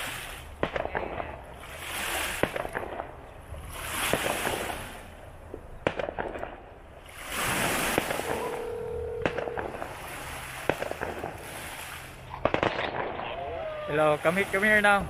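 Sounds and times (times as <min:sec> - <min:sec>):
fireworks bangs and crackles: 0:00.0 - 0:01.4, 0:02.2 - 0:03.2, 0:04.1 - 0:04.8, 0:05.8 - 0:06.7, 0:07.7 - 0:08.5, 0:10.6 - 0:11.6, 0:12.4 - 0:13.3
wash of noise: 0:07.0 - 0:13.0.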